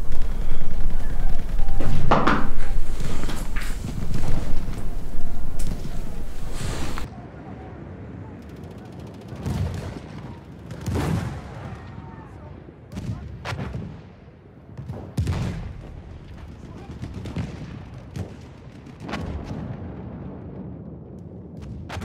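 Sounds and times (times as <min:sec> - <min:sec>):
footsteps crunching on rubble and snow: 0:00.0 - 0:07.1
handling noise rumble: 0:00.0 - 0:07.1.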